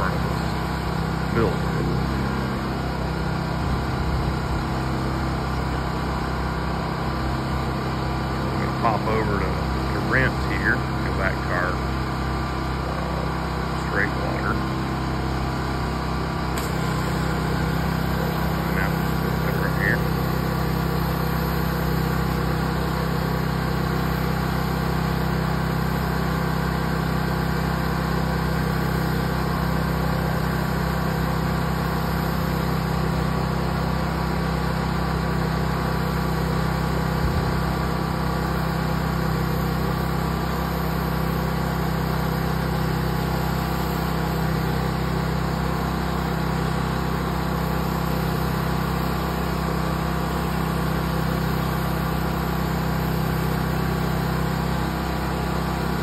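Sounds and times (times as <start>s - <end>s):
pressure washer engine drone: 0.0s - 56.0s
water jet hissing: 16.6s - 20.6s.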